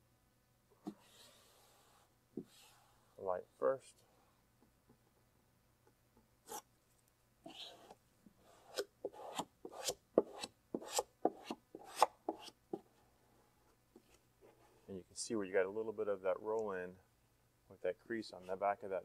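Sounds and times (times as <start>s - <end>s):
squeegee rubbing on vinyl: 0.9s - 3.0s.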